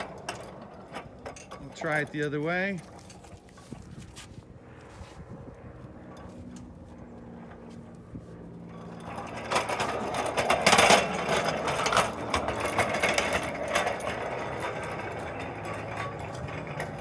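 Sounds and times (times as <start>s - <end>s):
steel wheels rolling on rails: 0.0s - 4.3s, 6.0s - 17.0s.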